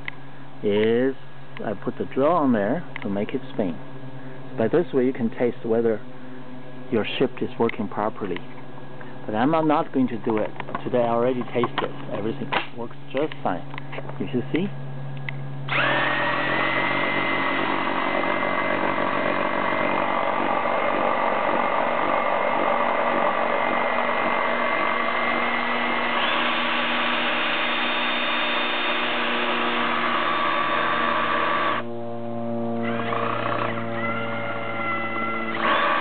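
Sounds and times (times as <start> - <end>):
cordless drill whining: 15.7 - 31.9, 32.8 - 36.0.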